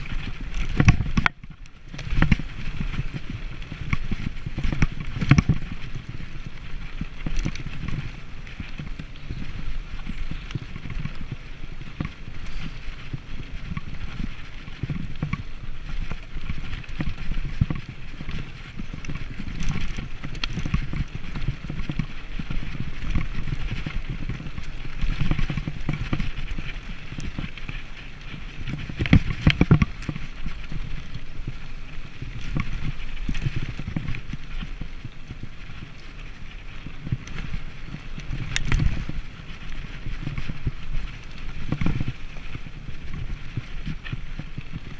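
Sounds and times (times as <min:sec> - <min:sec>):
bike rattling over bumps: 0:00.0 - 0:44.9.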